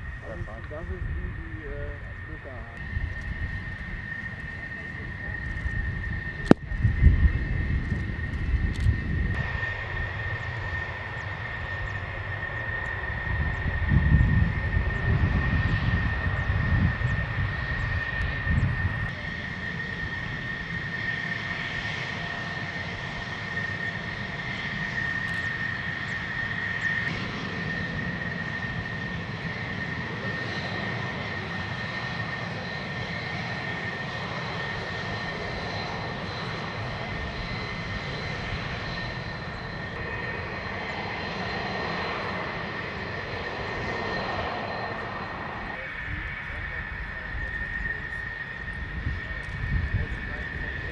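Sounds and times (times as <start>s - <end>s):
deep rumble: 0.0s - 10.8s
jet engine whine: 0.0s - 50.9s.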